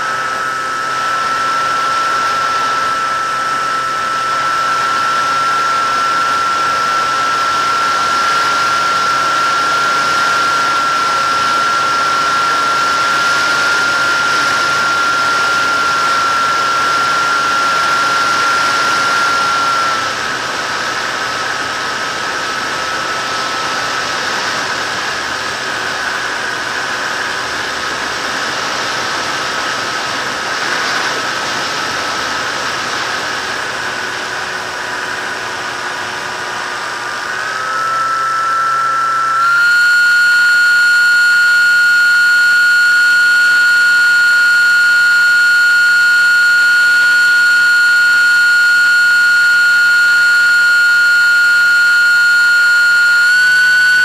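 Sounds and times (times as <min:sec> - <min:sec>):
model aircraft motor whine: 0:00.0 - 0:54.0
rushing air: 0:23.5 - 0:37.6.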